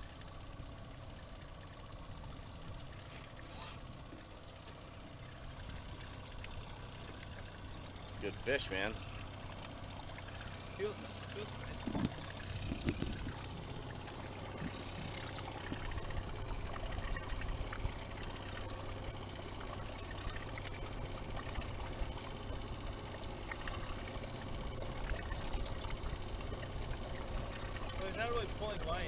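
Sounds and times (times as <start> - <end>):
outboard motor running: 0.0 - 29.0
water washing against hull: 8.7 - 29.0.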